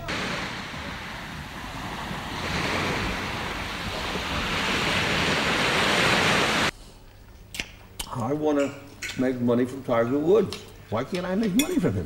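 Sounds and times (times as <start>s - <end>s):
surf breaking on beach: 0.0s - 6.7s.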